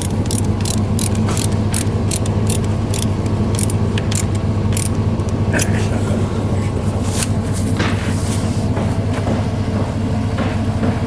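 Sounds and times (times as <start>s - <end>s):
ratcheting nut driver clicking: 0.0s - 5.4s
low engine hum: 0.0s - 11.0s.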